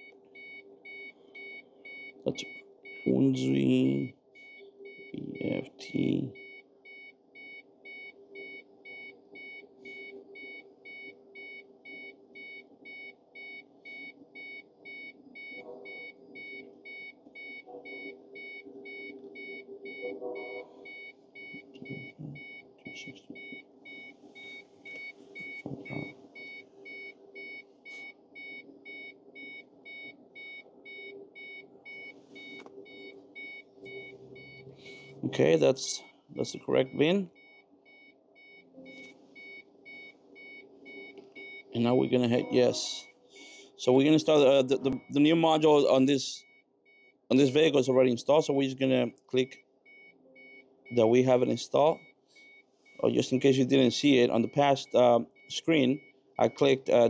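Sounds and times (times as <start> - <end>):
electronic warning chime beeping: 0.0 - 35.5, 36.4 - 43.6, 49.4 - 51.2
low steady hum: 0.0 - 57.0.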